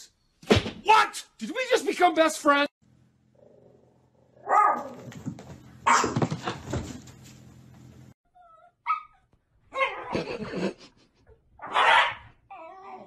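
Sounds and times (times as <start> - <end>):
dog yip: 5.9 - 6.2, 8.4 - 10.1, 11.6 - 13.0
dog howling and whining: 11.7 - 13.0.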